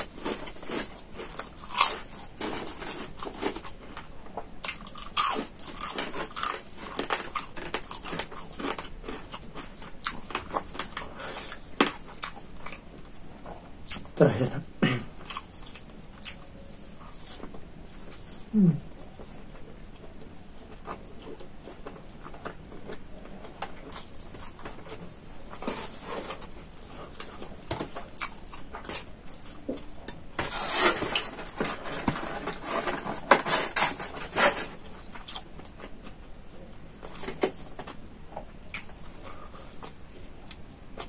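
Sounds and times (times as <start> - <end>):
styrofoam box crackling and scraping: 0.0 - 4.2, 5.4 - 12.1, 24.1 - 28.2, 30.3 - 35.2.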